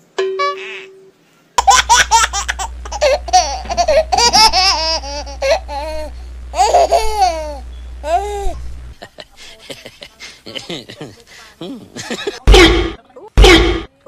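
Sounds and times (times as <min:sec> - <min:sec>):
high-pitched laughter: 0:01.6 - 0:09.3
steady low hum: 0:01.6 - 0:14.0.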